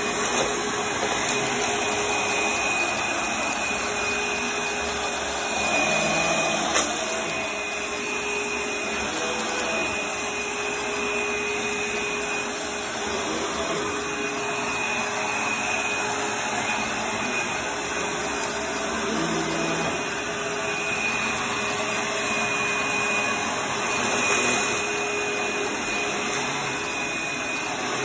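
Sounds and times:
vacuum cleaner running on carpet: 0.0s - 28.0s.

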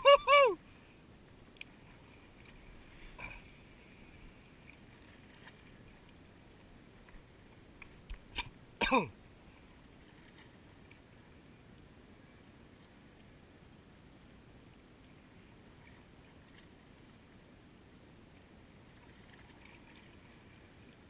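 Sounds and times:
person vocal sound dropping in pitch: 0.0s - 0.6s.

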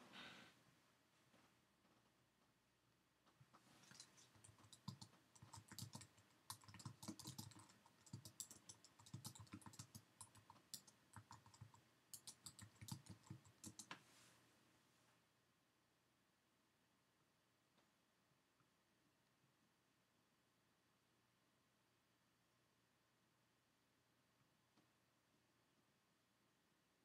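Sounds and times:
computer keyboard typing: 3.8s - 14.0s.

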